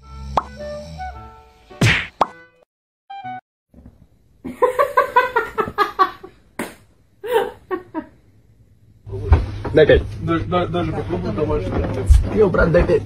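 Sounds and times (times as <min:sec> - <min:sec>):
person laughing: 0:07.2 - 0:08.0.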